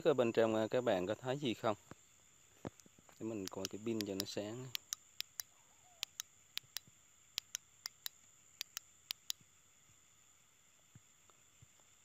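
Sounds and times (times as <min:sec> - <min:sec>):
flashlight switch clicks: 0:03.4 - 0:09.4.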